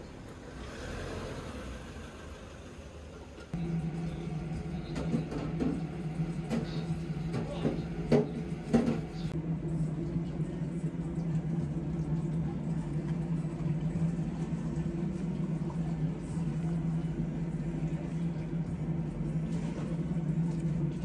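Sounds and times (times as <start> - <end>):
low machine hum: 2.5 - 21.0.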